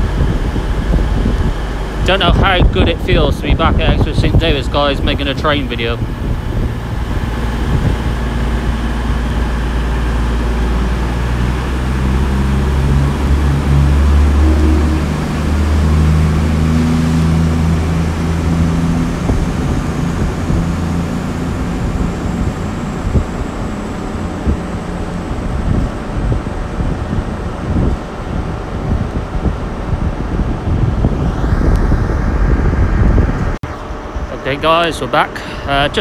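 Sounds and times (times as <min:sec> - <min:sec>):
diesel train engines accelerating: 0:00.0 - 0:36.0.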